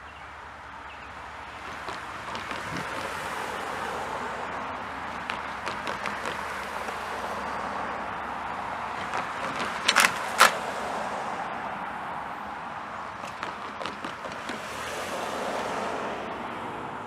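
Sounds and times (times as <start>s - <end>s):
pickup truck passing: 0.0s - 17.0s
steady outdoor rush: 0.0s - 17.0s.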